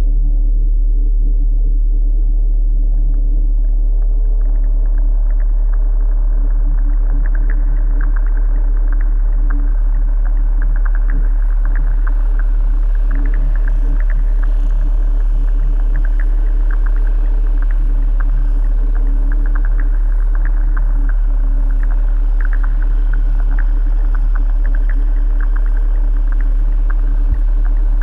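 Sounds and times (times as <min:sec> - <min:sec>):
deep steady drone: 0:00.0 - 0:28.0
low hum: 0:00.0 - 0:28.0
faint crackling ticks: 0:03.0 - 0:28.0.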